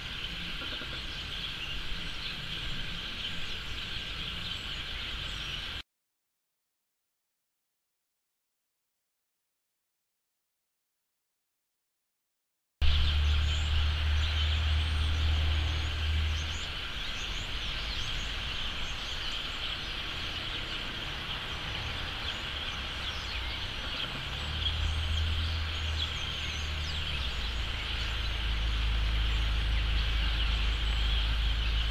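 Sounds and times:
flock of birds chirping: 0.0s - 5.8s, 12.8s - 31.9s.

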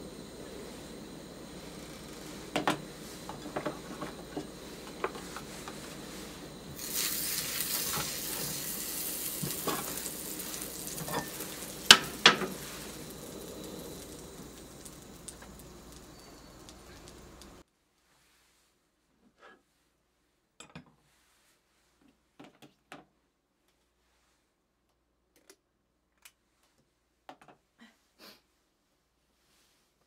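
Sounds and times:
oil sizzling in skillet: 0.0s - 17.6s.

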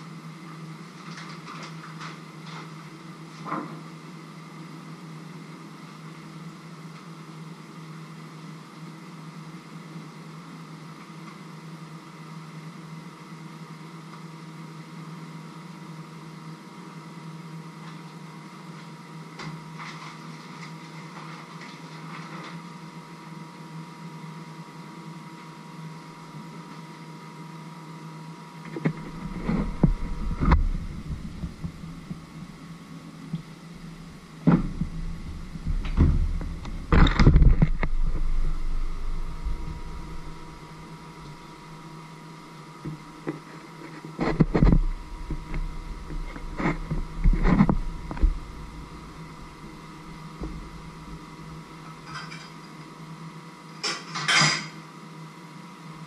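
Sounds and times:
steady mechanical hum: 0.0s - 56.0s
loud knocks and bumps: 34.0s - 41.5s, 44.2s - 51.2s.

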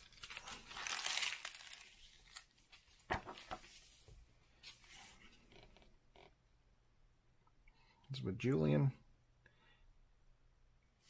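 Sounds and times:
book pages rustling: 0.0s - 5.5s.

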